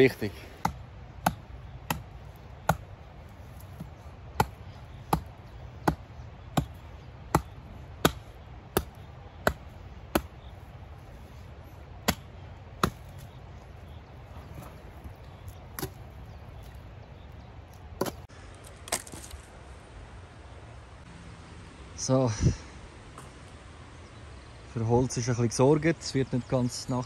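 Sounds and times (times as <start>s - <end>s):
hatchet chopping branches: 0.0s - 10.6s, 11.9s - 14.0s, 14.7s - 16.8s, 18.0s - 19.3s.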